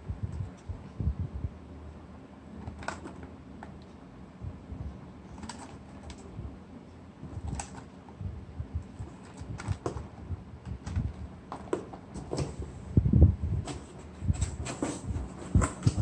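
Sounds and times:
dull low thumps: 0.0 - 1.6, 8.2 - 11.2, 12.9 - 13.6
fingers clicking and tapping on card: 2.6 - 3.3, 5.3 - 6.3, 7.4 - 7.9, 9.0 - 10.1.

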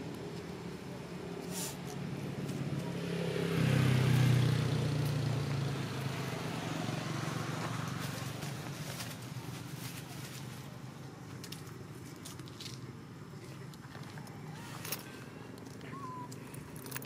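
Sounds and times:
motor vehicle passing: 0.0 - 10.9.

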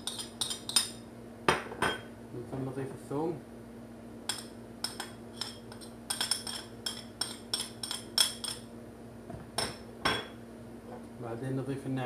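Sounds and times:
metal spoon clinking on ceramic plate: 0.0 - 1.0, 4.3 - 8.7.

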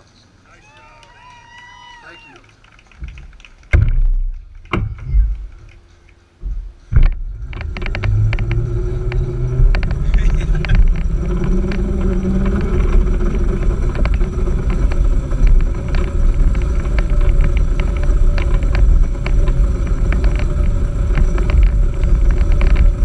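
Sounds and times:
go-kart engine and wind rumble: 6.4 - 23.0.

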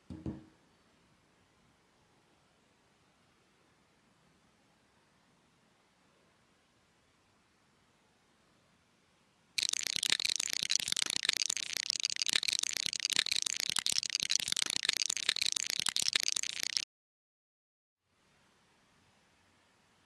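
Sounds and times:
plastic bricks rattling and clicking: 9.6 - 16.8.

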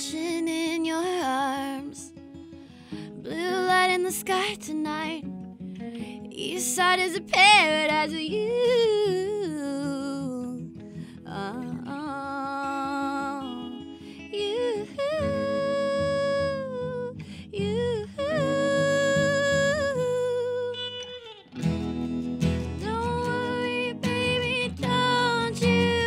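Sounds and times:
acoustic guitar: 0.0 - 26.0
electric guitar: 12.5 - 26.0.

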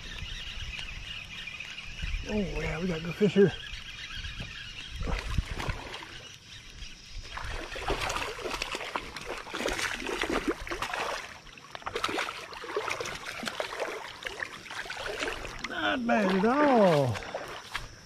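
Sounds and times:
water splashing and trickling: 4.6 - 18.0.

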